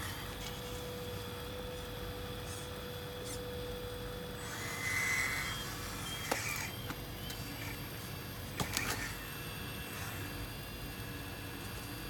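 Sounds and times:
motor and hydraulic pump whine: 0:00.0 - 0:12.0.

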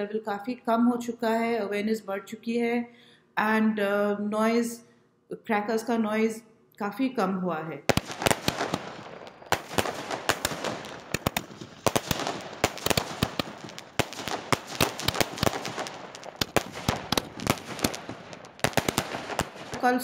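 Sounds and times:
firecrackers bursting: 0:07.9 - 0:20.0.

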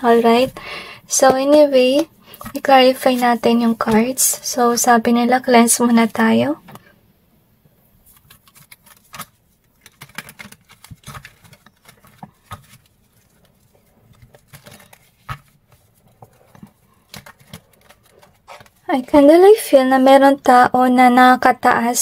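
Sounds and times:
cards shuffled by hand: 0:08.1 - 0:18.8.

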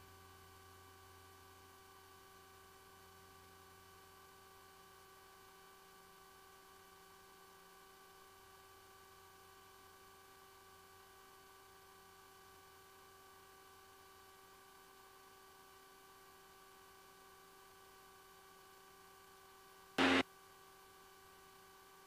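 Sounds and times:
faint electrical hum: 0:20.0 - 0:20.2.

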